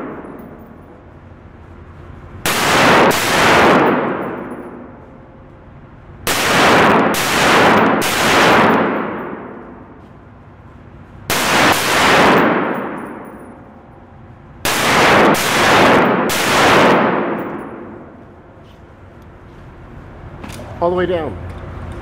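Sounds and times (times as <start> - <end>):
rifle shots echoing: 0.0 - 0.8, 2.4 - 5.0, 6.3 - 10.0, 11.3 - 13.6, 14.6 - 18.2.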